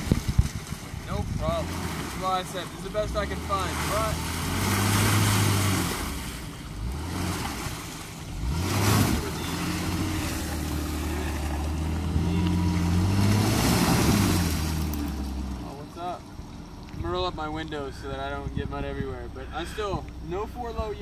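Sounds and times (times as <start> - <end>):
tyres splashing through mud: 0.0 - 18.4
engine revving: 1.4 - 16.0.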